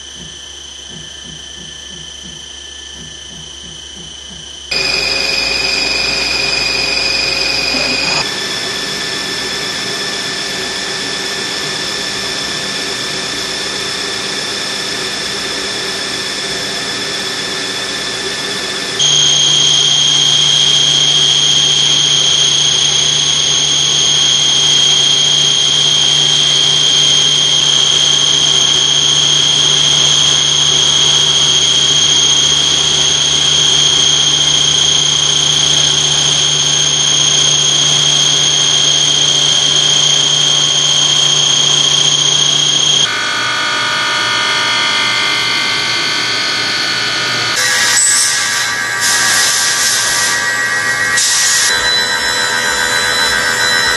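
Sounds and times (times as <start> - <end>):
low hum: 0.0 - 9.0, 19.0 - 46.5
milling machine whine: 0.0 - 53.9.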